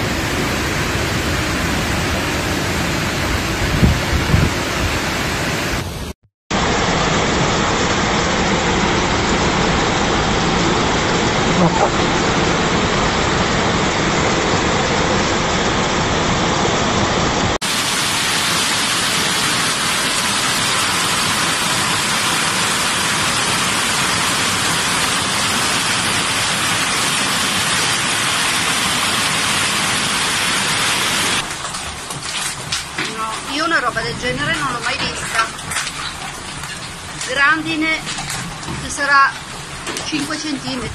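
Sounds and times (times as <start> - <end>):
heavy hail and rain: 17.6 - 40.9
rain hiss: 17.6 - 40.9.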